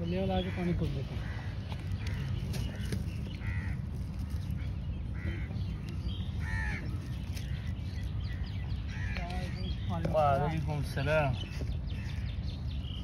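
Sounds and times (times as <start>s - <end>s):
bird cawing: 0.3s - 9.9s.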